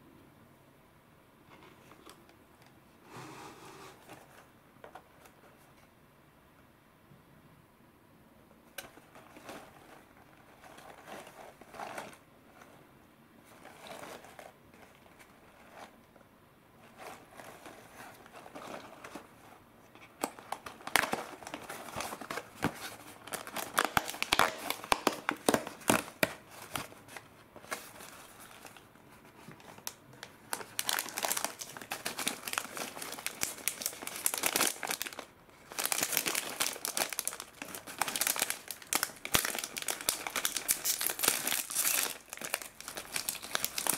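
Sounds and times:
foil pouches crinkling: 0:20.2 - 0:28.9, 0:29.6 - 0:43.9.

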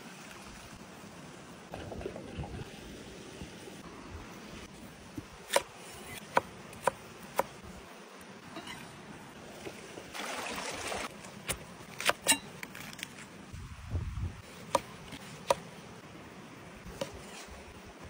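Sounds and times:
mountain stream rushing: 0:08.5 - 0:11.5.

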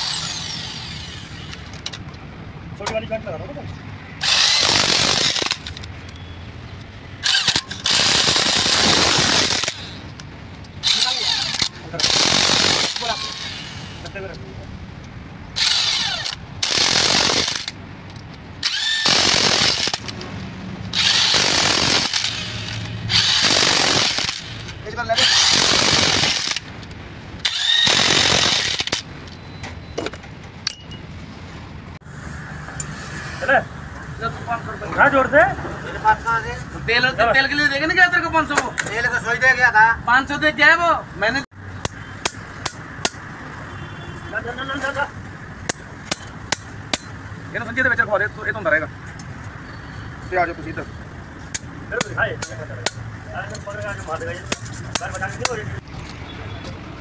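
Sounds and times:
electric impact wrench running: 0:00.0 - 0:01.7, 0:04.2 - 0:05.8, 0:07.2 - 0:10.0, 0:10.8 - 0:14.0, 0:15.6 - 0:17.8, 0:18.6 - 0:20.2, 0:20.9 - 0:26.7, 0:27.4 - 0:29.0
sharp metallic clink: 0:29.5 - 0:31.6
impact wrench hammering: 0:30.0 - 0:31.1, 0:41.8 - 0:43.3, 0:45.6 - 0:47.2.

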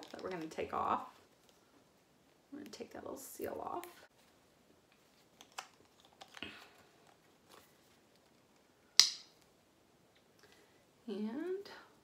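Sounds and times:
sharp plastic seal crackle: 0:09.0 - 0:09.4.

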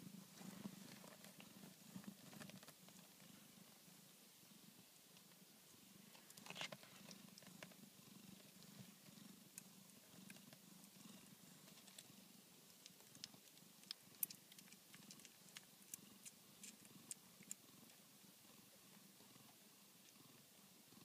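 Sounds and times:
cat purring: 0:00.0 - 0:21.0
small clicks: 0:12.8 - 0:17.6.

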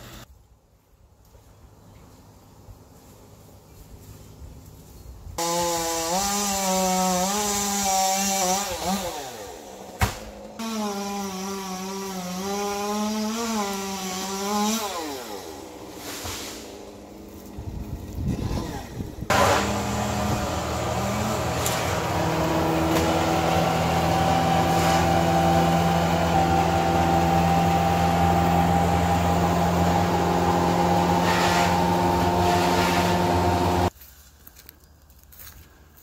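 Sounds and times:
wood chipper engine running: 0:15.2 - 0:33.9.

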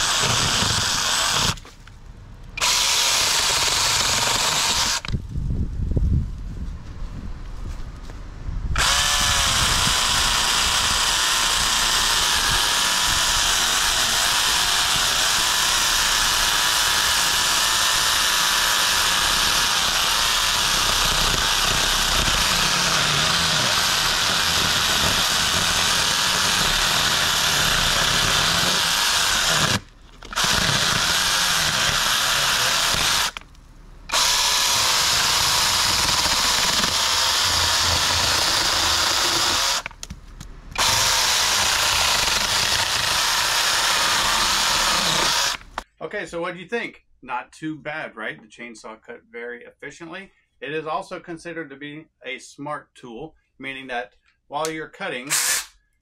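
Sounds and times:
chainsaw motor whine: 0:00.0 - 0:01.6, 0:08.8 - 0:33.4, 0:34.1 - 0:40.1, 0:40.7 - 0:45.8
chain rasping through wood: 0:19.4 - 0:33.4, 0:34.1 - 0:40.0.

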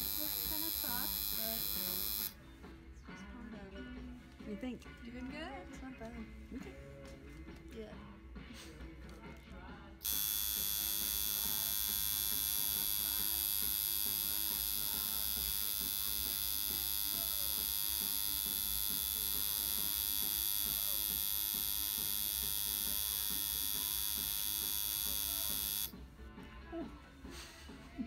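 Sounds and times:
tattoo machine buzzing: 0:00.0 - 0:02.4, 0:10.0 - 0:26.0.

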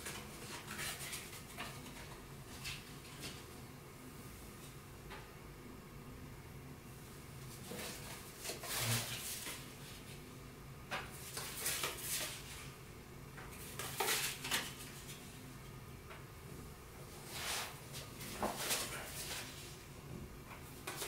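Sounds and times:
playing cards rustling and clicking: 0:13.5 - 0:15.2.

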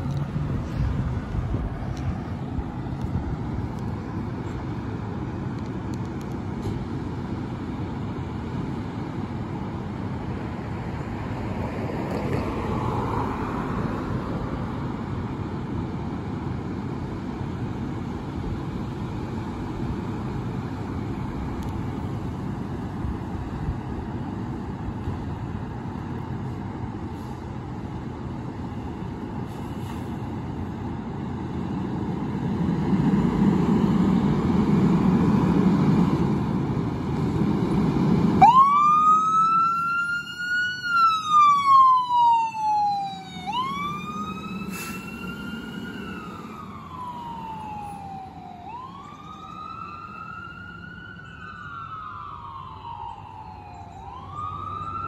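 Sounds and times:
fire engine rumbling: 0:00.0 - 0:55.0
wailing siren: 0:37.8 - 0:55.0.

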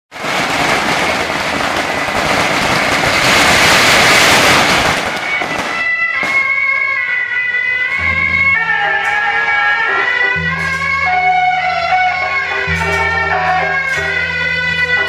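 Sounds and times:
firecrackers crackling: 0:00.1 - 0:15.0
music with high held notes: 0:06.0 - 0:15.0.

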